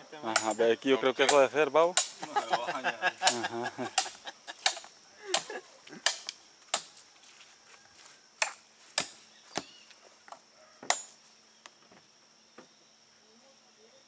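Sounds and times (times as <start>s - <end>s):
machete chopping coconut husk: 0.3s - 0.6s, 1.2s - 2.3s, 3.3s - 7.0s, 8.4s - 9.8s.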